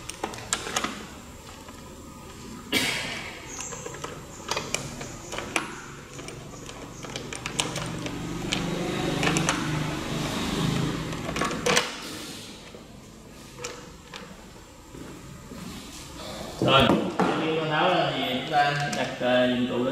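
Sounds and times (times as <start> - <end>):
sharp metallic clicks and knocks: 3.5 - 10.1.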